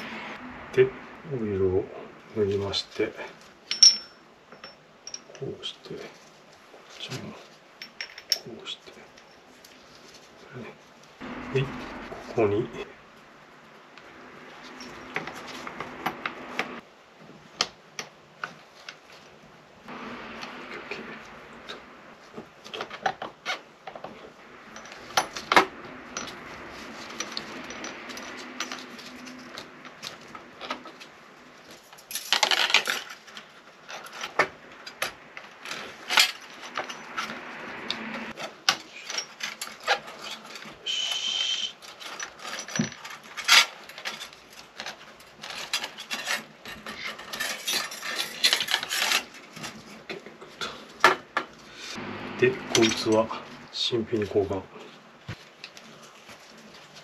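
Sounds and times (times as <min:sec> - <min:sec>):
metal parts clicking and clinking: 0:03.6 - 0:05.5, 0:07.8 - 0:10.3, 0:14.4 - 0:16.6, 0:22.6 - 0:40.8, 0:41.8 - 0:50.2, 0:52.6 - 0:53.5
metal scraping: 0:09.2 - 0:16.8, 0:19.8 - 0:50.1.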